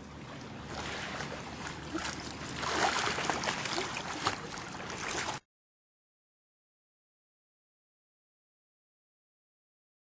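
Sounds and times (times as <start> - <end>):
water sloshing and splashing: 0.0 - 5.5.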